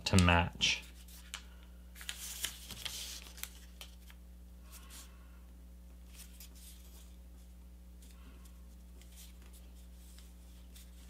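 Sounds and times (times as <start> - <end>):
paper rustling and crinkling: 2.0 - 5.1, 6.1 - 7.2, 8.0 - 11.0.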